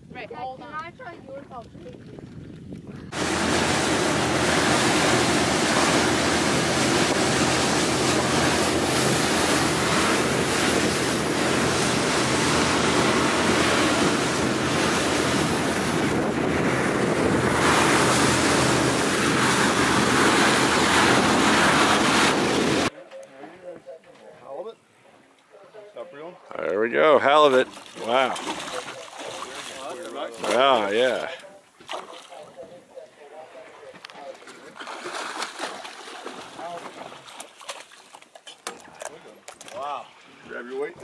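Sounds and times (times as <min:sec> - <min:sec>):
wind buffeting the microphone: 0:00.0 - 0:22.9
water rushing past a boat hull: 0:01.3 - 0:22.9, 0:27.3 - 0:32.4
low engine hum: 0:03.2 - 0:22.9.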